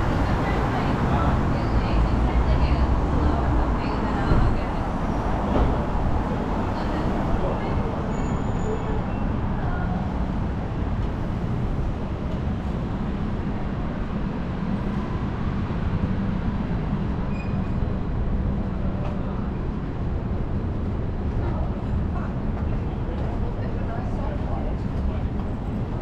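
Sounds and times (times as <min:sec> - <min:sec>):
traffic rumble: 0:00.0 - 0:26.0.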